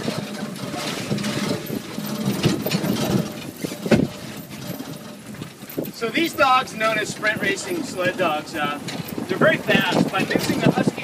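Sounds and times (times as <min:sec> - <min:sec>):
cart rattling over gravel: 0:00.0 - 0:11.0.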